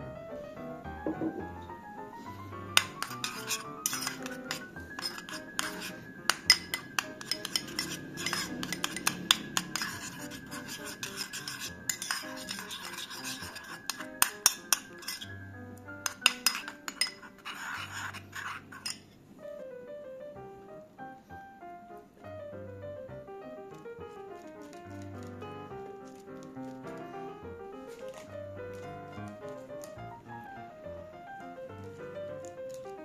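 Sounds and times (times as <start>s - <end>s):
wet scraping of sauce: 2.7s - 15.4s, 16.0s - 19.0s
metal spoon clinking against bowl: 2.8s - 15.4s, 16.0s - 19.0s.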